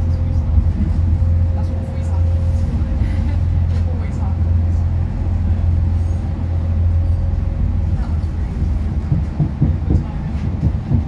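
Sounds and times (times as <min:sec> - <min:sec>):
train interior drone: 0:00.0 - 0:11.0.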